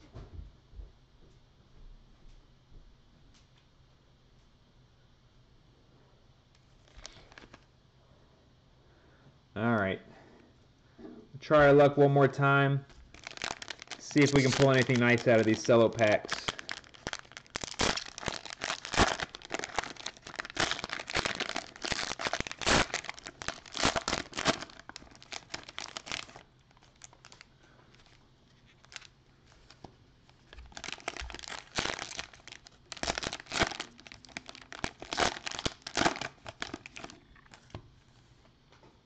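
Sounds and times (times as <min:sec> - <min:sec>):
plastic wrapper crinkling: 0:06.6 - 0:07.7, 0:12.9 - 0:37.8.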